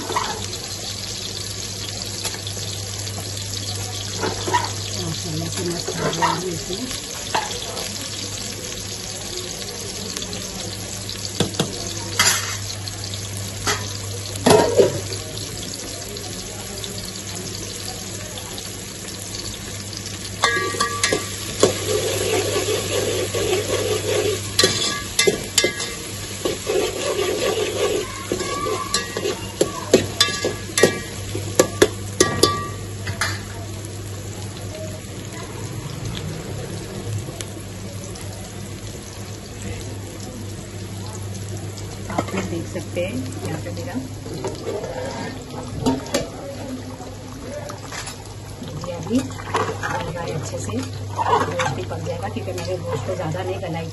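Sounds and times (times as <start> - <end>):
onions sizzling in hot oil: 0.0 - 53.9
ladle scraping metal pot: 20.4 - 29.4, 51.1 - 51.8.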